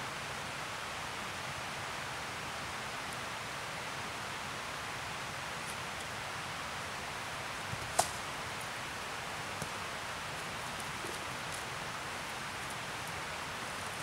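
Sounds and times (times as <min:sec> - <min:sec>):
rushing outdoor hiss: 0:00.0 - 0:14.0
sharp snap: 0:07.9 - 0:08.2.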